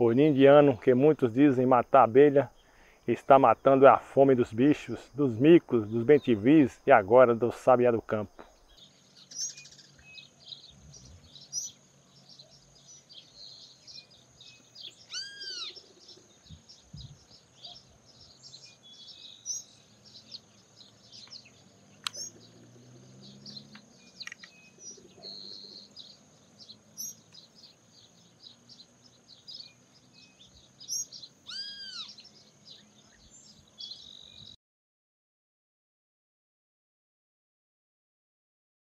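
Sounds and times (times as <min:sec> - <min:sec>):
high insect drone: 0:00.0 - 0:34.5
birds chirping: 0:00.0 - 0:34.6.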